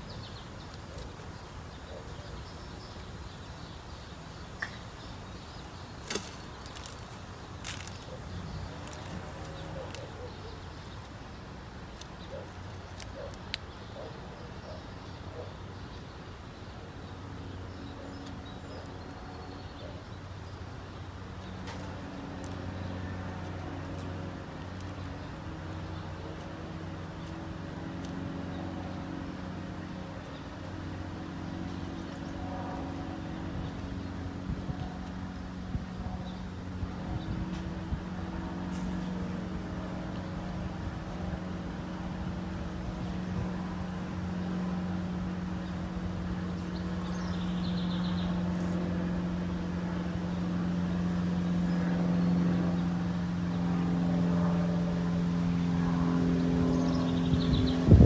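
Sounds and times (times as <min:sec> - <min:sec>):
low machine drone: 0:16.8 - 0:58.0.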